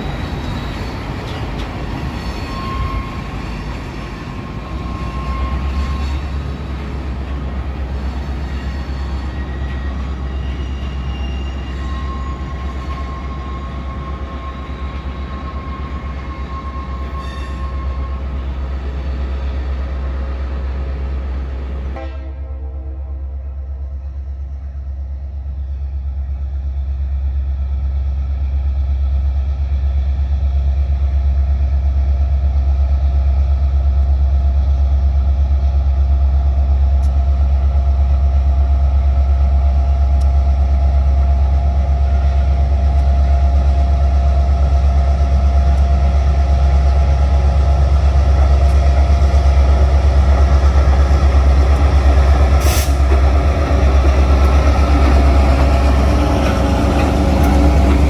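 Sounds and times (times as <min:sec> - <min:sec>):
locomotive engine rumble: 0:00.0 - 0:22.0, 0:23.6 - 0:58.0
short sharp hiss: 0:52.6 - 0:53.0.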